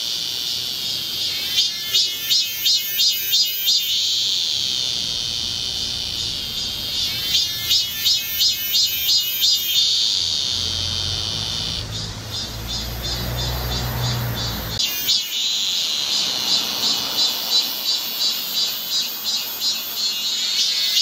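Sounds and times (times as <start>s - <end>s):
cicadas singing: 0.0s - 21.0s
low rumble: 4.8s - 8.6s.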